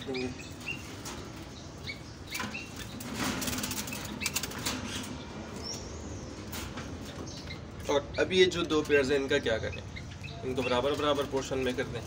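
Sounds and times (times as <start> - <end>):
dove flapping wings in cage: 3.0 - 4.8.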